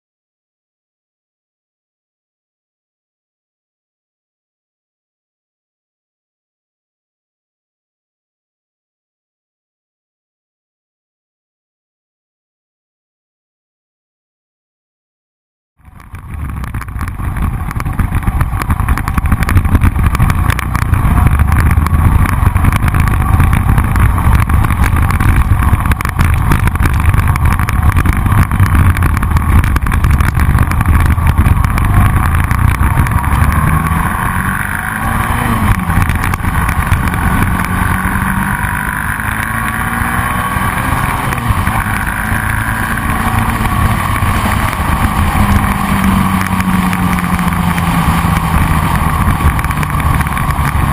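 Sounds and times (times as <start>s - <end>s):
motorcycle engine running: 15.8s - 50.9s
wind rumble on microphone: 15.8s - 50.9s.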